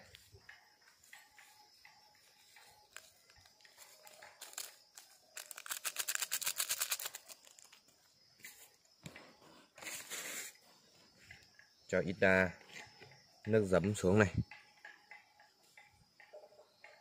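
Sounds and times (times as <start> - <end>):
seasoning shaken out rustling: 3.8 - 7.8.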